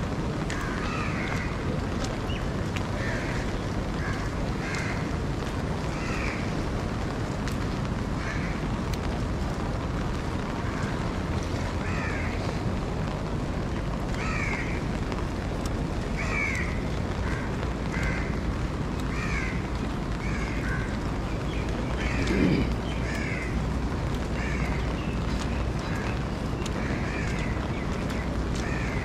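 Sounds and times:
rain and wind: 0:00.0 - 0:29.0
crows cawing: 0:00.5 - 0:01.6, 0:03.0 - 0:05.1, 0:05.9 - 0:06.5, 0:08.2 - 0:08.6, 0:11.8 - 0:12.4, 0:14.2 - 0:14.8, 0:16.2 - 0:18.4, 0:19.1 - 0:19.6, 0:20.2 - 0:21.0, 0:22.0 - 0:23.6, 0:24.3 - 0:24.8, 0:26.8 - 0:27.6, 0:28.6 - 0:29.0.

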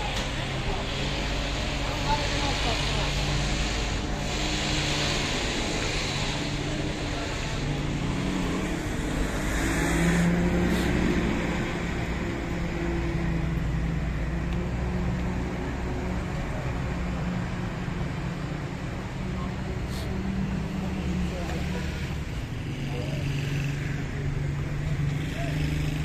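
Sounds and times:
vehicle passing close: 0:00.0 - 0:18.3
car engines in traffic: 0:00.0 - 0:26.0.

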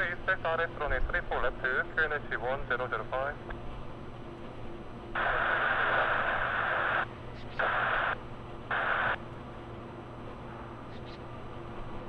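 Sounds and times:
radio static bursts: 0:05.2 - 0:09.2.

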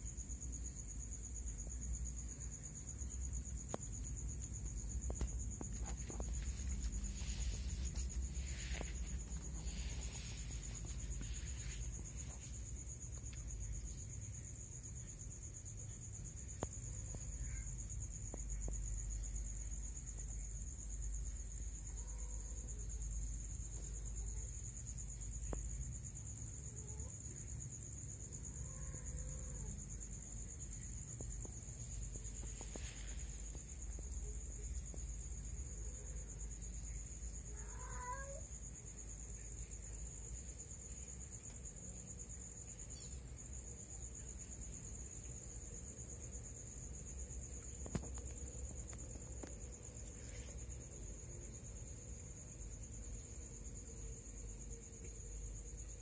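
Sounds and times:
crickets trilling: 0:00.0 - 0:56.0
soft rustling: 0:03.4 - 0:13.7, 0:30.3 - 0:35.3, 0:47.4 - 0:52.4
cats meowing faintly: 0:28.5 - 0:29.8, 0:37.4 - 0:38.7.

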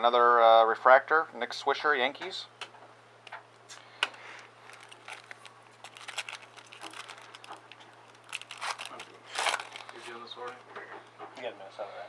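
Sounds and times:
foil wrapper crinkling and tearing: 0:04.6 - 0:10.5.

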